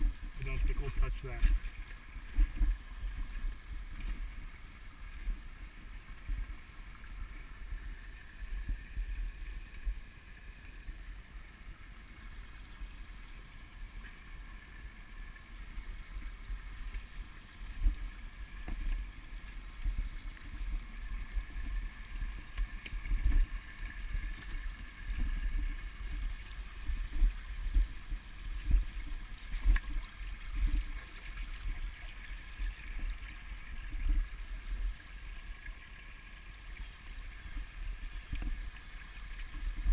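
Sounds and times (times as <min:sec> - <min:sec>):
stream trickling over rocks: 0:00.0 - 0:39.9.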